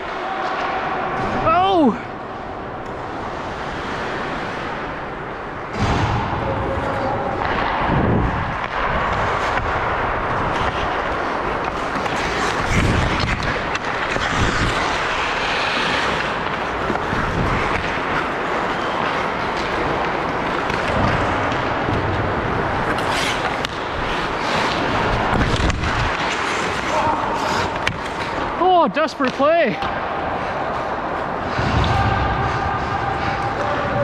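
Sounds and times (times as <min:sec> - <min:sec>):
hockey sticks or puck clacking: 0:00.0 - 0:02.0, 0:02.7 - 0:34.0
skates scraping on ice: 0:00.0 - 0:34.0
rink noise: 0:03.0 - 0:29.0.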